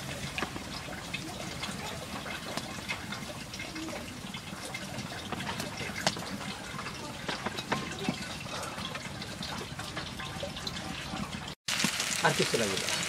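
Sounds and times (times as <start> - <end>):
oil sizzling in a frying pan: 0.0 - 8.5, 11.7 - 13.0
oil crackling and popping: 0.0 - 13.0.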